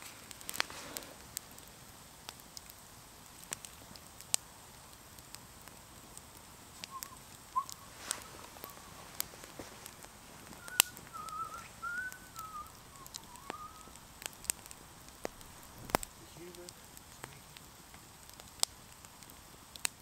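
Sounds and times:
campfire crackling and popping: 0:00.0 - 0:20.0
faint wavering whistle: 0:06.8 - 0:09.1, 0:10.5 - 0:14.0.

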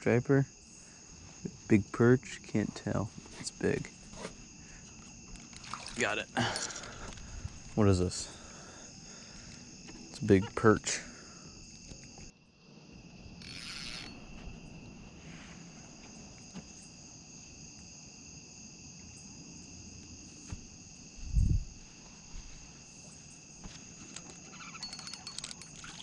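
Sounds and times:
night insects trilling: 0:00.0 - 0:26.0.

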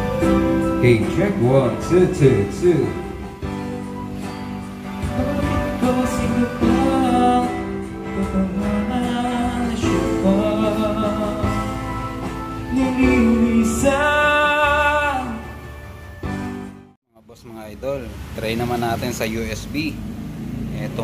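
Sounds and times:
karaoke song with guitar: 0:00.0 - 0:16.4
person singing long notes: 0:05.0 - 0:11.9, 0:12.7 - 0:15.6.

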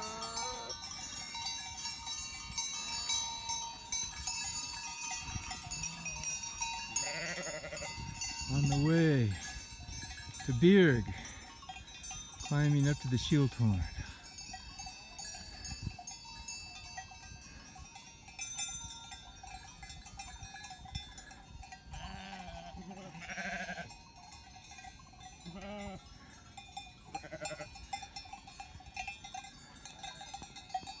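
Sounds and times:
livestock bleating: 0:00.0 - 0:00.8, 0:07.0 - 0:08.0, 0:21.9 - 0:23.9, 0:25.4 - 0:26.0, 0:27.2 - 0:27.7
animal bells clanking: 0:00.0 - 0:31.0.

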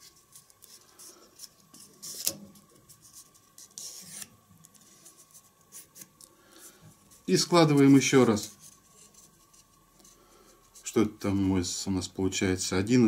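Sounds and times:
paper rustling and crinkling: 0:00.0 - 0:06.3.

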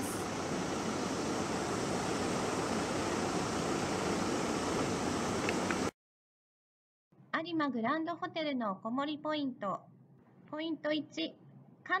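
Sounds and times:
outdoor background hiss: 0:00.0 - 0:05.9.

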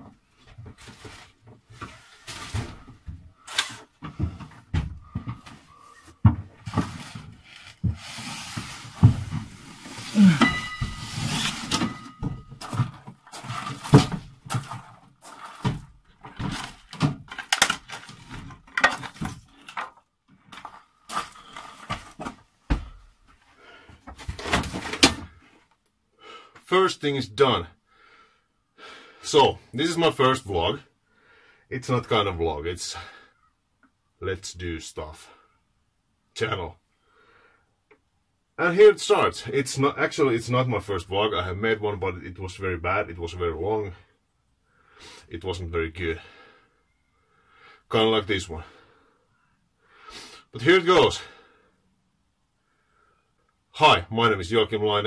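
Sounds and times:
cabinet knocks and thumps: 0:04.1 - 0:05.4, 0:09.0 - 0:09.6.

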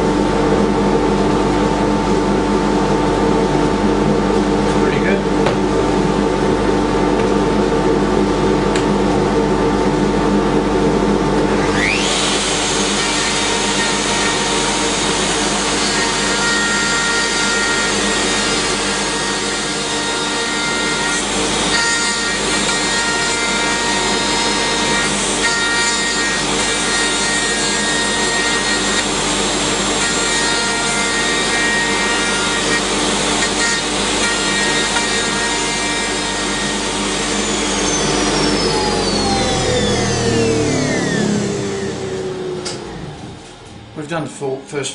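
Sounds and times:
dust extractor humming: 0:00.0 - 0:44.9
router cutting wood: 0:11.4 - 0:43.3.

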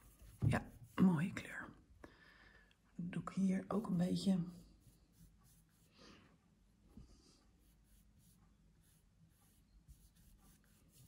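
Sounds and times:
paintbrush swishing on canvas: 0:00.0 - 0:01.4.

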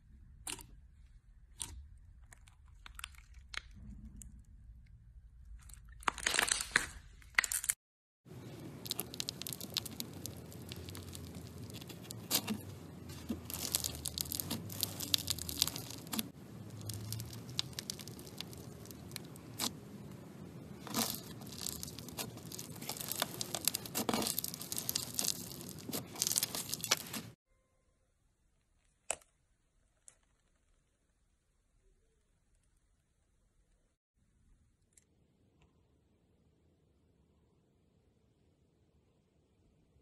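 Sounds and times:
slime crackling and popping: 0:05.6 - 0:07.8, 0:08.4 - 0:27.4.

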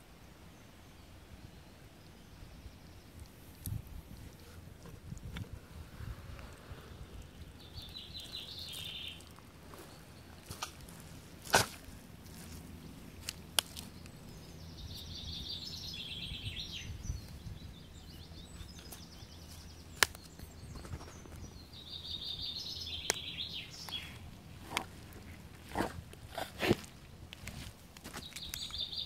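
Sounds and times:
songbird trilling: 0:07.2 - 0:11.4, 0:13.2 - 0:24.9
boots stepping through mud: 0:08.2 - 0:14.1, 0:23.8 - 0:28.9
sticks cracking underfoot: 0:10.4 - 0:14.2, 0:18.7 - 0:20.9, 0:23.0 - 0:28.8.

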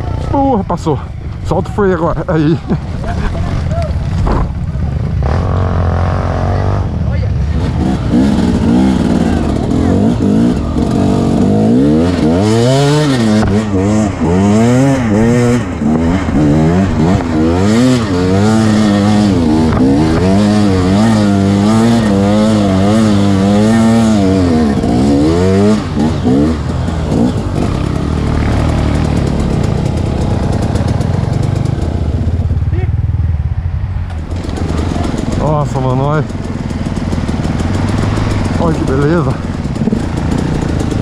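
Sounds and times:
dirt bike engine revving: 0:02.8 - 0:33.1, 0:34.2 - 0:41.0.

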